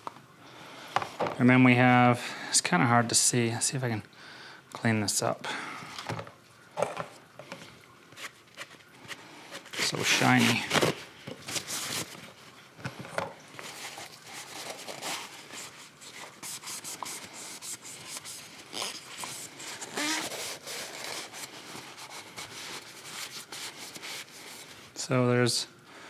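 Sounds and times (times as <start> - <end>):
paper towel rubbing and crinkling: 8.1 - 12.6, 13.5 - 25.1.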